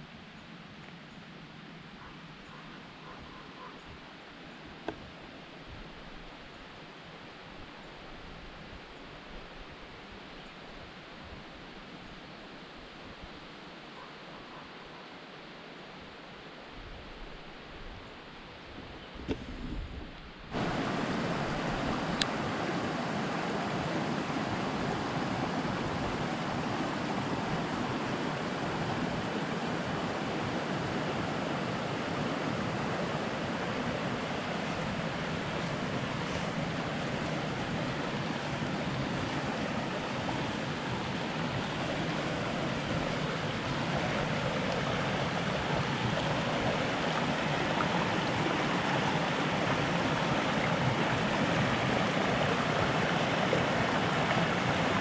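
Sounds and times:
creek flowing over rocks: 20.4 - 55.0.

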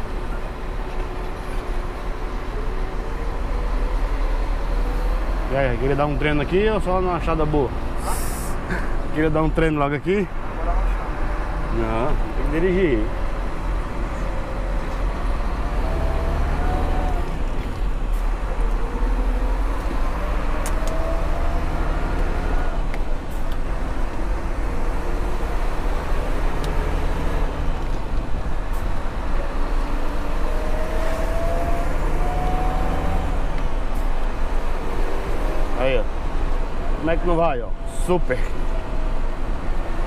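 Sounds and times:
truck diesel engine drone: 0.0 - 40.0
engine whine climbing: 11.0 - 40.0.

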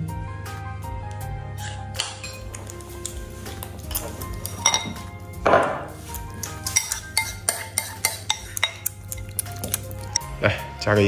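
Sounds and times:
metal spoon scraping ceramic bowl: 3.6 - 5.1, 6.0 - 10.2.

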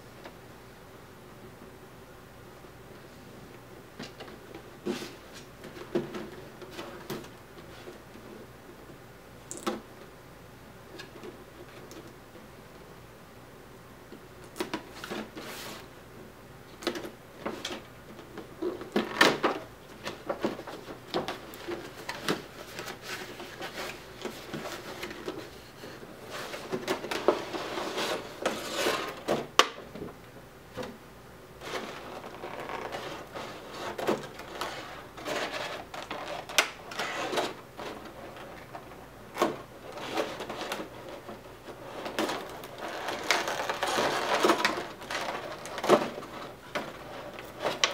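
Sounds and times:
plastic tray crinkling and clicking: 42.0 - 47.9.

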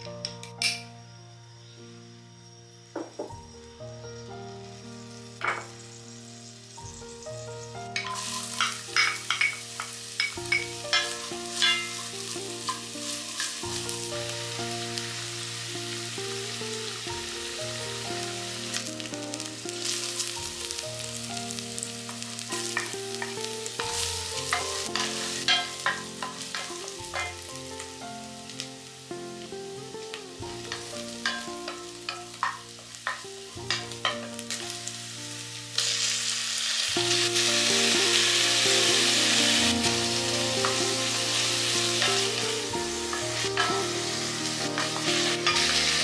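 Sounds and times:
onion and garlic sizzling in oil: 0.0 - 46.0.

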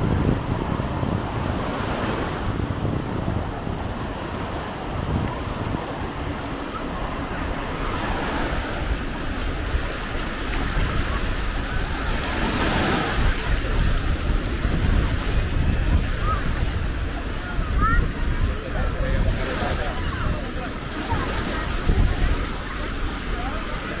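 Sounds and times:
small waves breaking on shore: 0.0 - 24.0
wind rumble on microphone: 0.0 - 24.0.

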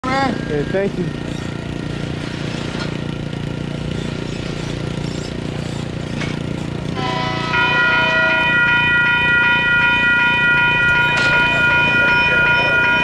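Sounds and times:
railroad crossing bell ringing: 0.0 - 2.2, 6.4 - 13.0
low engine rumble: 0.0 - 13.0.

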